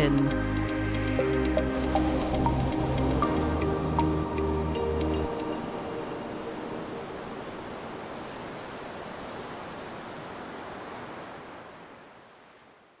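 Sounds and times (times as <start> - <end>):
background music: 0.0 - 7.4
sea waves washing: 0.0 - 12.5.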